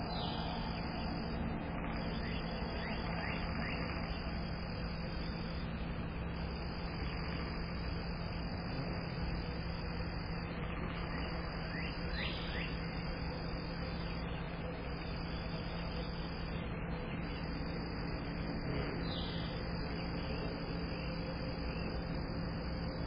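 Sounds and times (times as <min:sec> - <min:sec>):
bird chirping: 0:11.0 - 0:12.8.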